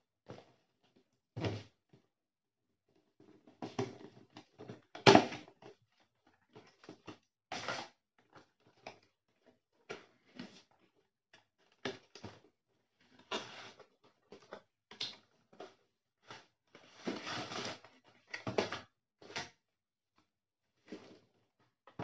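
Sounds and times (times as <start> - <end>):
cardboard rustling and scraping: 15.7 - 18.8.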